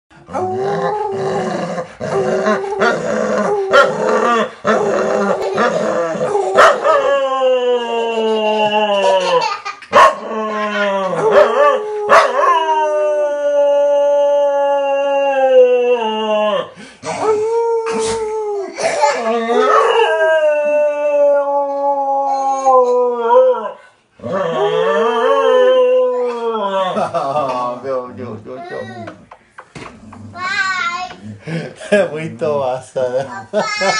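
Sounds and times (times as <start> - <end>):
dog howling: 0.3 - 9.4, 10.2 - 27.1
man howling: 0.3 - 9.4, 10.2 - 27.1.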